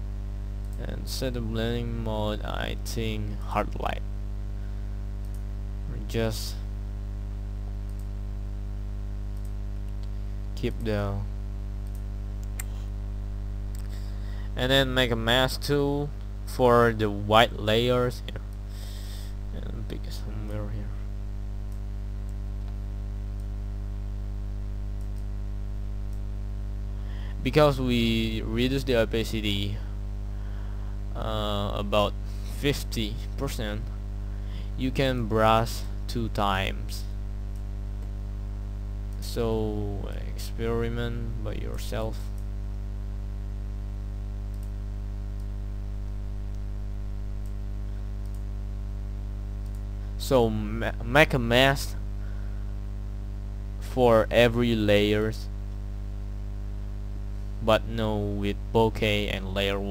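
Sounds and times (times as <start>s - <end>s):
low electrical hum: 0.0s - 59.9s
computer mouse clicks: 7.9s - 8.1s, 11.8s - 12.8s, 25.0s - 25.3s.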